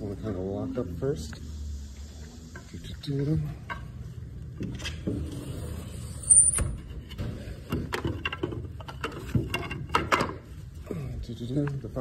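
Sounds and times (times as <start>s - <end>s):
sliding glass door squeal: 5.3s - 6.8s.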